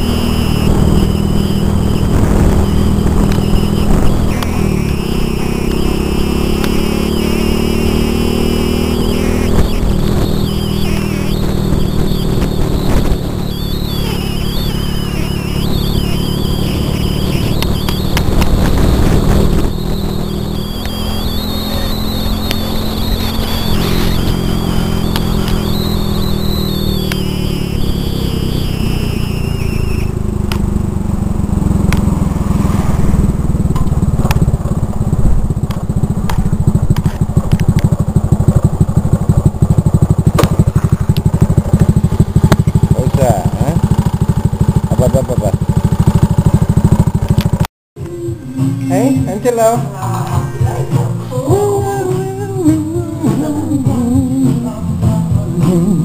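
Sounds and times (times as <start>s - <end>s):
wind buffeting microphone: 0.0s - 4.8s, 15.1s - 21.9s
motorbike engine running: 0.0s - 56.0s.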